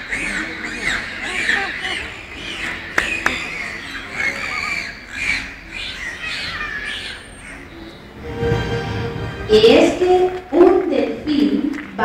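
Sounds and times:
dolphins squawking and whistling: 0.0s - 8.1s.

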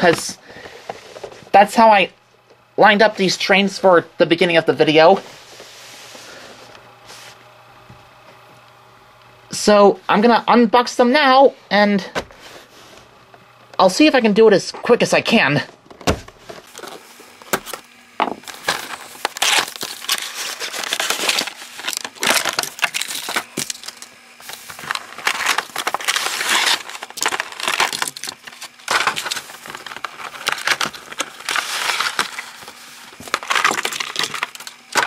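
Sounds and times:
packaging crinkling and tearing: 16.6s - 35.0s.

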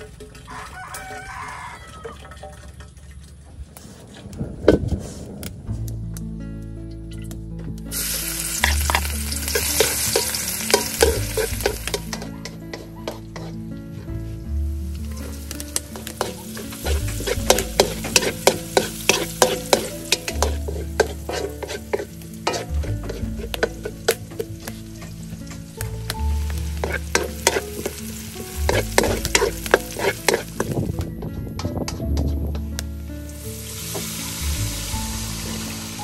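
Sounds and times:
onions sizzling in oil: 7.9s - 13.7s, 14.4s - 31.1s, 33.2s - 36.0s
wooden spatula scraping a wok: 8.1s - 31.1s.

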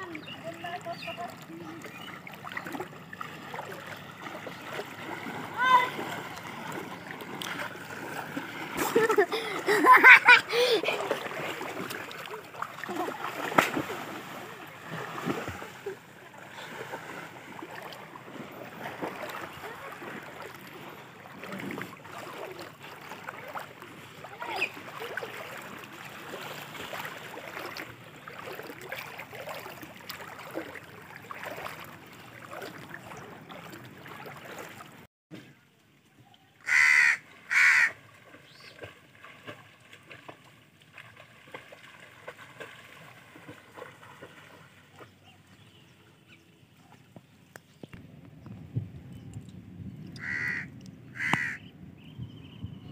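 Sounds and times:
background noise wash: 0.0s - 52.9s
crow cawing: 36.6s - 38.0s, 50.2s - 51.6s.

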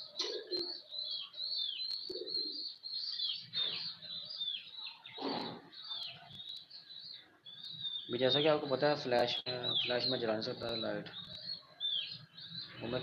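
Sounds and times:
pigeon cooing: 0.0s - 0.9s, 5.0s - 6.4s
birds chirping: 0.0s - 13.0s.

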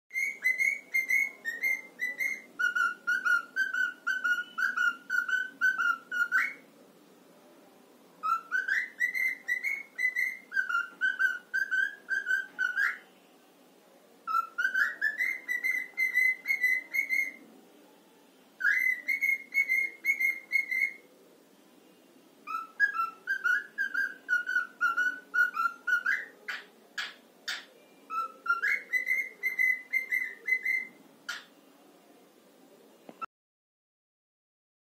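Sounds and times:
cockatiel whistling: 0.1s - 6.6s, 8.2s - 13.1s, 14.3s - 17.4s, 18.6s - 21.0s, 22.4s - 31.5s.

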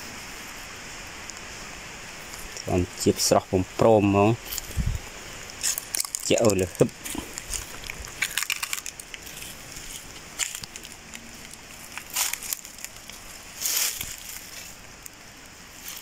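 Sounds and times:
footsteps crunching on leaves: 4.4s - 15.0s.

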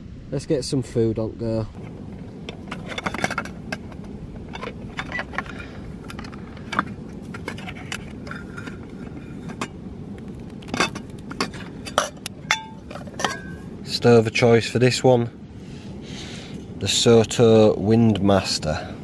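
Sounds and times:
low background rumble: 0.0s - 19.0s
metal cook pot clinking: 10.7s - 13.7s.

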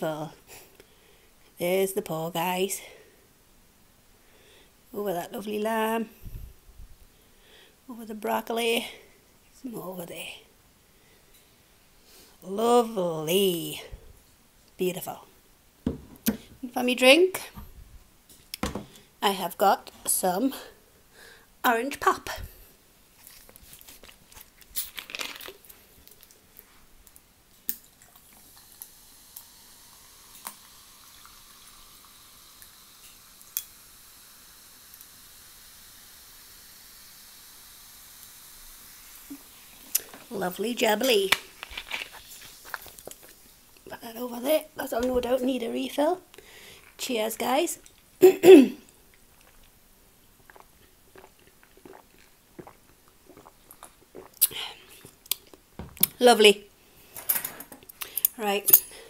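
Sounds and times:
rustling and knocks: 15.8s - 16.6s, 18.6s - 19.0s, 55.8s - 56.0s
person speaking: 15.9s - 17.6s, 40.3s - 41.5s, 43.9s - 46.2s, 56.0s - 56.7s
fizzy drink fizzing: 28.2s - 43.6s
person gulping a drink: 50.4s - 56.1s.

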